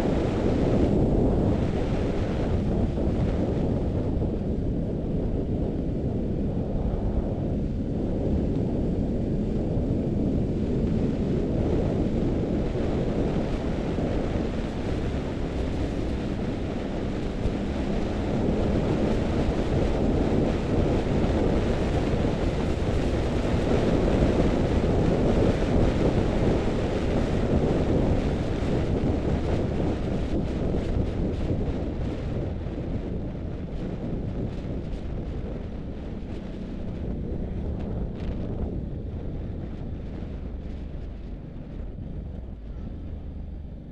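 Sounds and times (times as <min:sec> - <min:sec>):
wind buffeting microphone: 0:00.0 - 0:43.9
faint engine tone: 0:37.5 - 0:43.9.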